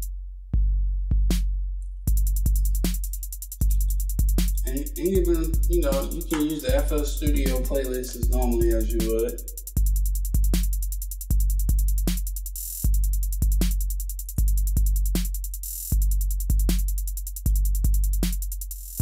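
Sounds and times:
fast hi-hat ticks: 0:02.1 - 0:19.0
deep bass hits: 0:03.6 - 0:09.1
snare or clap hits: 0:04.4 - 0:09.2.

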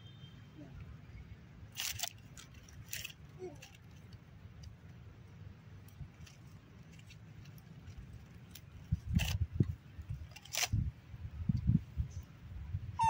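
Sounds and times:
dry leaves crackling and rustling: 0:01.7 - 0:04.2, 0:05.9 - 0:09.4
leaf crunches: 0:01.7 - 0:04.2.

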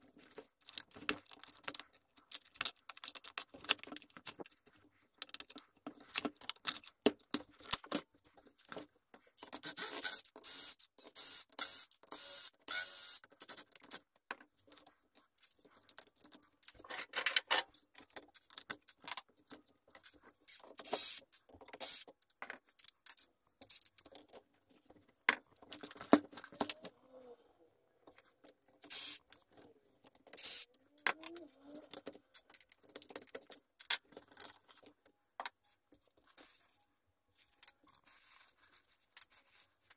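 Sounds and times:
parts scraping and rattling: 0:13.0 - 0:27.0.

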